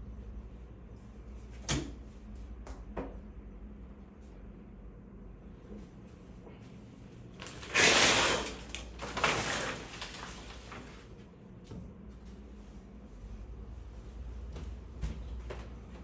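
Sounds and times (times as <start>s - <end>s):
shower curtain rings scraping: 7.4s - 10.5s.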